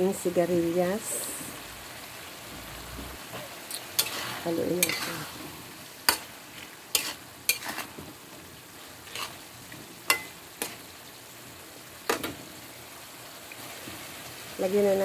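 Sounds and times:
simmering broth hiss: 0:00.0 - 0:15.0
utensil scraping a pan: 0:03.3 - 0:05.5, 0:06.1 - 0:08.1, 0:09.0 - 0:09.4.

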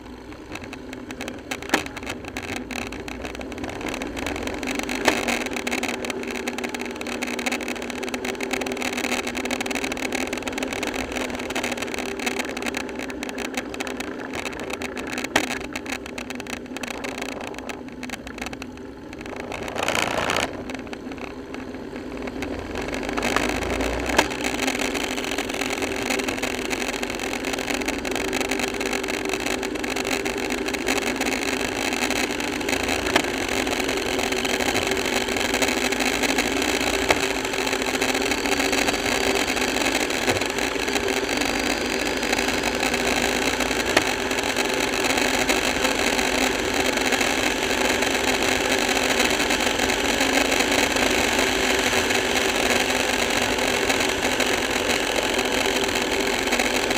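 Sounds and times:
motorcycle engine running: 0:00.0 - 0:56.9.

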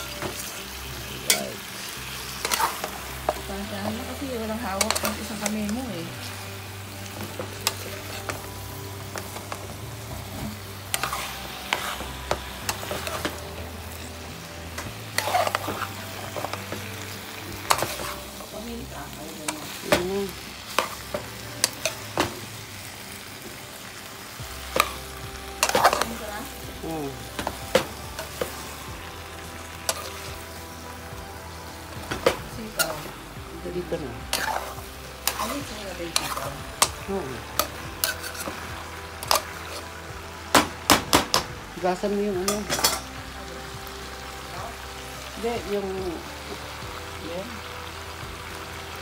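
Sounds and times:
vegetables sizzling in oil: 0:00.0 - 0:49.0
spoon clacking against pan: 0:25.6 - 0:26.2, 0:34.3 - 0:37.0, 0:42.5 - 0:43.1.

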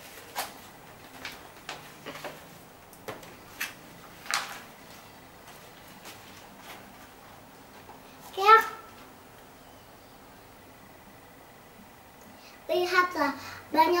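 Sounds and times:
book pages rustling: 0:00.0 - 0:07.2.

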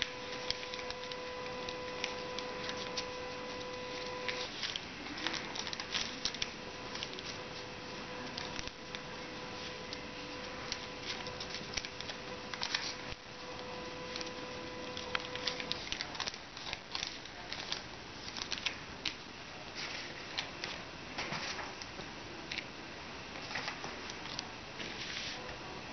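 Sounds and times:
fingers tapping paper: 0:00.0 - 0:19.2
paper rustling and crackling: 0:00.0 - 0:22.7, 0:23.3 - 0:25.4.

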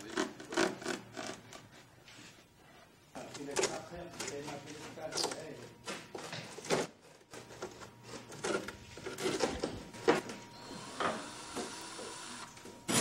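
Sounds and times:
cordless drill whirring: 0:10.5 - 0:13.0.

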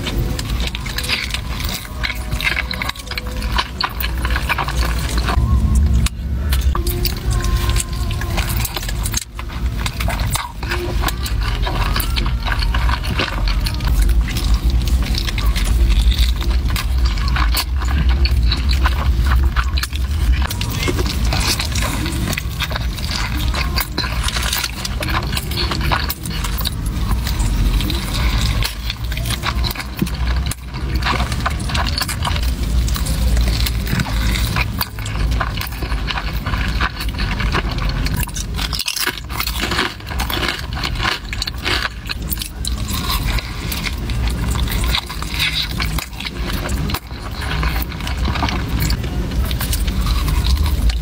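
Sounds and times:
chewing and mouth noises: 0:00.0 - 0:51.0
low steady rumble: 0:00.0 - 0:51.0.

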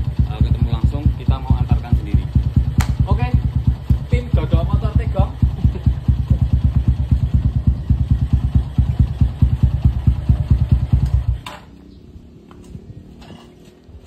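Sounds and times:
motorcycle engine idling: 0:00.0 - 0:13.2
engine stopping clunk: 0:09.5 - 0:11.9.

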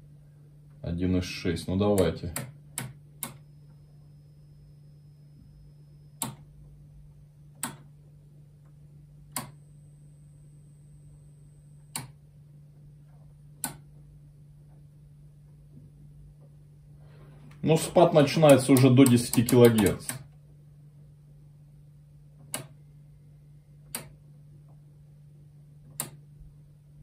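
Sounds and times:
low electrical hum: 0:00.0 - 0:27.0
switch clicks: 0:01.9 - 0:03.4, 0:06.2 - 0:06.5, 0:07.6 - 0:07.9, 0:09.3 - 0:09.6, 0:11.9 - 0:12.2, 0:13.6 - 0:13.9, 0:18.4 - 0:20.4, 0:22.4 - 0:22.8, 0:23.8 - 0:24.2, 0:25.8 - 0:26.3.

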